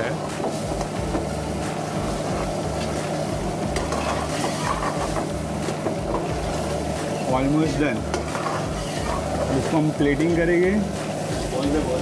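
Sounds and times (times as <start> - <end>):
gravy sizzling and bubbling in a pan: 0.0 - 12.0
ladle scraping a pan: 3.8 - 5.3, 8.1 - 9.9.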